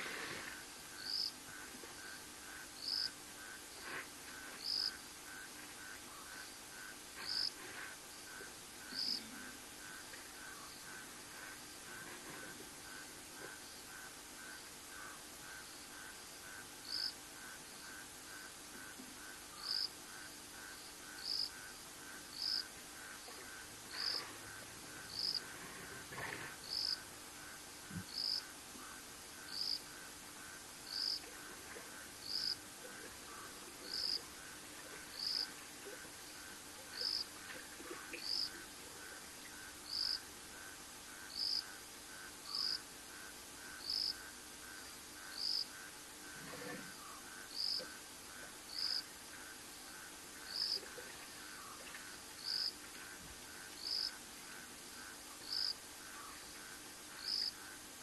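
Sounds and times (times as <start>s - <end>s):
insects fast pulsing: 52.4s - 57.8s.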